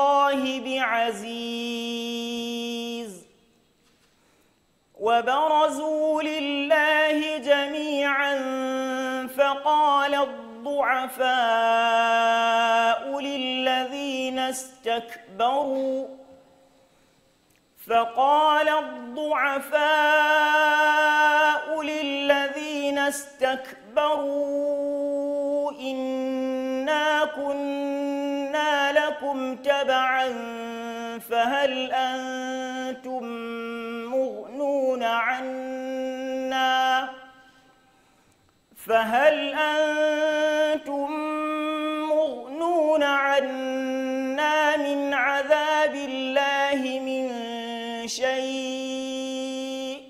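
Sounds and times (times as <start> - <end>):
man chanting melodically: 0.0 - 3.5, 5.0 - 16.4, 17.8 - 37.6, 38.7 - 50.0.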